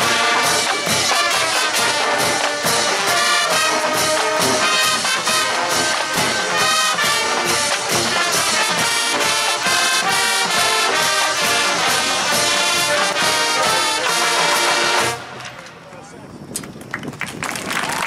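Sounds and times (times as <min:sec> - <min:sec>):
drum and percussion beat: 0:00.0 - 0:15.2
marching band brass: 0:00.0 - 0:15.7.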